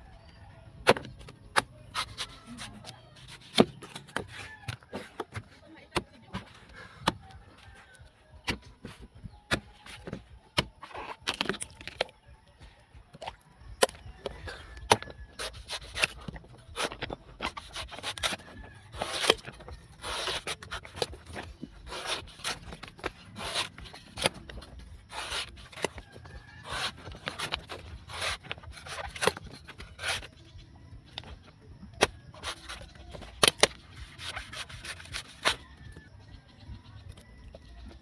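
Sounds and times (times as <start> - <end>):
knife cutting coconut husk: 0.8 - 7.3, 8.4 - 12.1, 14.8 - 30.4, 31.8 - 36.0.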